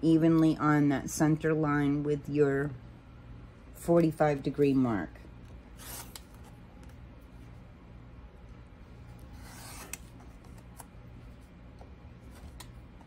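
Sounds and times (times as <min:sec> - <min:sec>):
rotary cutter rasping through fabric: 0:05.8 - 0:06.2, 0:09.2 - 0:10.0.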